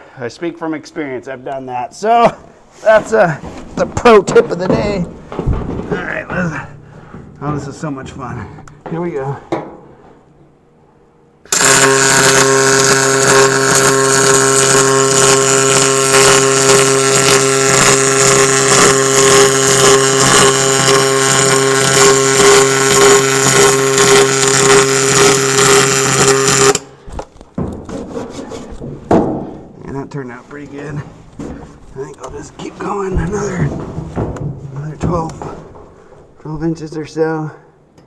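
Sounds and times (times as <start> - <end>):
welding arc buzzing hiss: 11.4 - 27.0.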